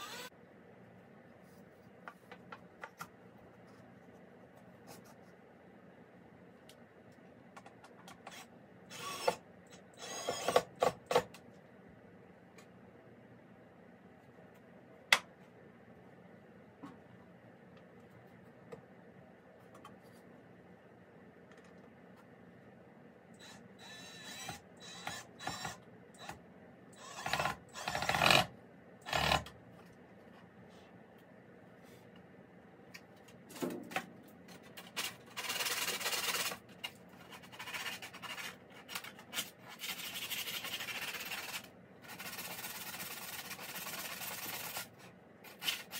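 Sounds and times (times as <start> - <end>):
cordless drill driving screw: 0.0 - 0.3, 10.0 - 10.7
power drill driving screws: 0.0 - 0.3, 8.9 - 9.4, 10.0 - 10.7, 23.4 - 25.8, 27.0 - 28.5.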